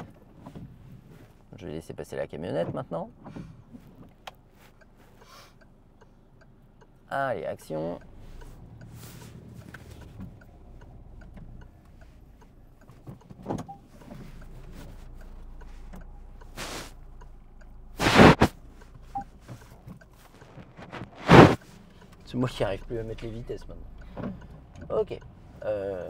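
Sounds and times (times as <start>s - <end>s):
car engine idling: 3.0s - 26.0s
short whooshing bursts: 16.6s - 17.0s, 18.0s - 18.6s, 21.1s - 21.7s.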